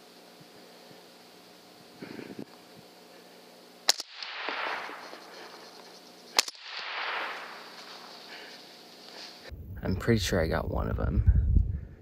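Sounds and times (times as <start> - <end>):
rifle shots: 3.8 - 5.7, 6.3 - 8.5.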